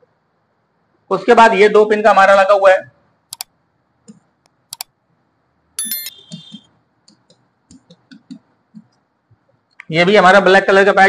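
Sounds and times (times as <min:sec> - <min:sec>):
bright electronic chime: 0:05.8 - 0:06.2
light clicks and taps: 0:07.0 - 0:09.1.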